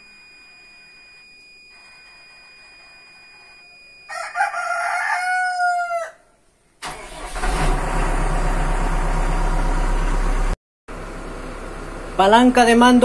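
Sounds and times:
rooster crowing: 0:04.1 - 0:06.4
diesel engine running: 0:06.8 - 0:13.0.

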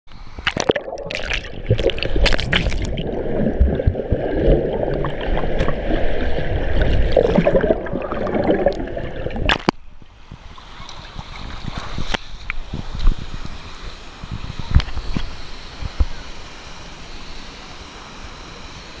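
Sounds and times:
water splashing: 0:00.4 - 0:09.7
water sloshing and gurgling: 0:00.4 - 0:10.0.

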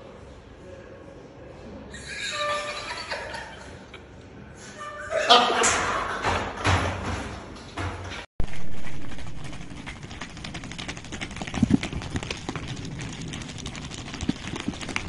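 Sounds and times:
hooves clip-clopping on concrete: 0:08.4 - 0:15.0.

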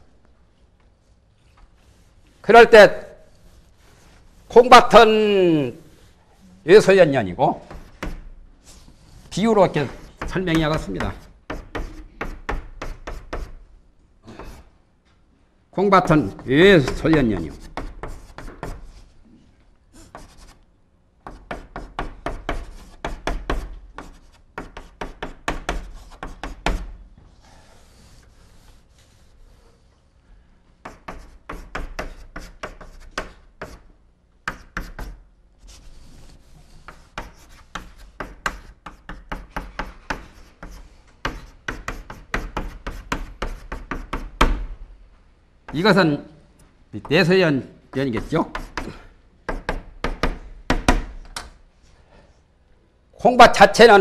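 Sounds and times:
chalk tapping and scraping: 0:00.8 - 0:02.5, 0:07.6 - 0:13.6, 0:16.0 - 0:19.3, 0:19.9 - 0:30.0, 0:30.8 - 0:44.5, 0:47.9 - 0:51.1.

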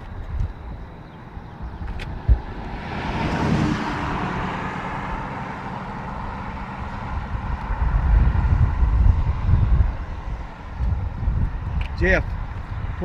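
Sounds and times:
car driving past: 0:01.9 - 0:11.1.

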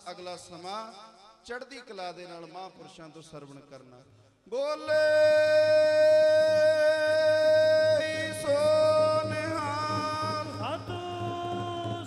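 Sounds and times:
man singing devotional chant: 0:04.5 - 0:12.0.

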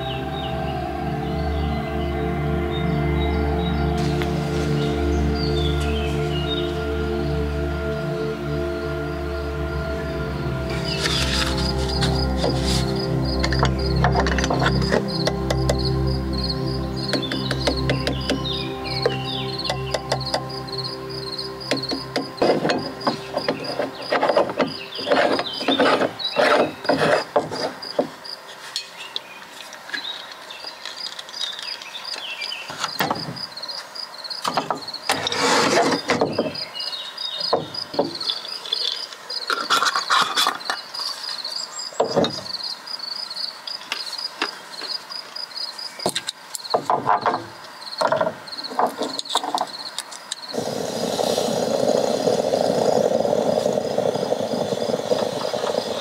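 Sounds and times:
insect chirping: 0:00.0 - 0:56.0
steady rushing noise: 0:50.5 - 0:56.0.

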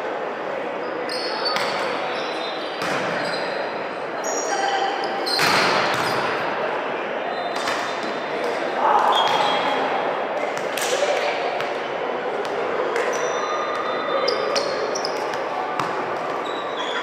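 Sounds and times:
crowd and player voices: 0:00.0 - 0:17.0
shoes squeaking on court: 0:01.0 - 0:03.6, 0:13.0 - 0:17.0.

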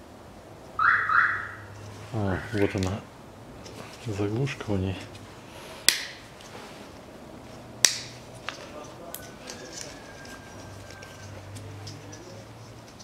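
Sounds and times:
sharp plastic clicks: 0:07.8 - 0:08.2.

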